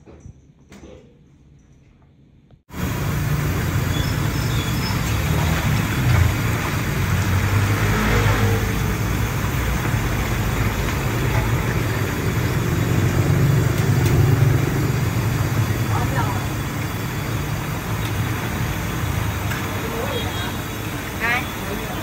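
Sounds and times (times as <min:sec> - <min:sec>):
vehicle engine and road noise: 0:02.7 - 0:22.0.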